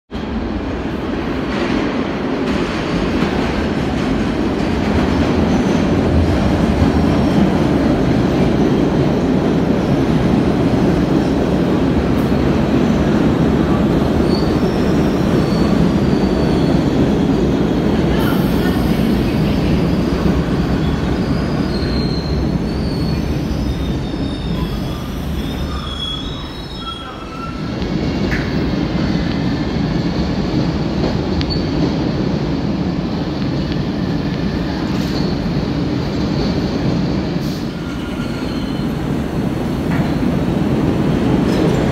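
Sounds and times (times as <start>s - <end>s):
train wheels on rail: 0.2s - 41.9s
wheel and brake squeals: 14.2s - 17.0s, 20.5s - 27.7s, 37.7s - 39.1s.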